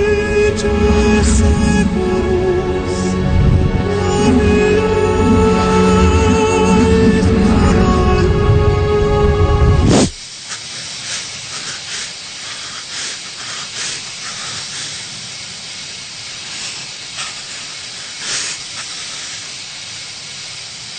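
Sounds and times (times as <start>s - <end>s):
bright puffs of hiss: 0.0s - 6.0s, 9.8s - 20.9s
steady hiss: 0.0s - 20.9s.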